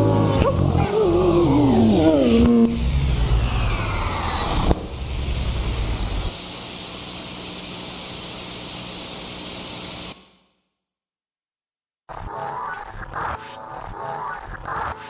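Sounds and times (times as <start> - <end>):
low rumble: 0.0 - 6.4
rushing hiss of noise: 2.6 - 10.2.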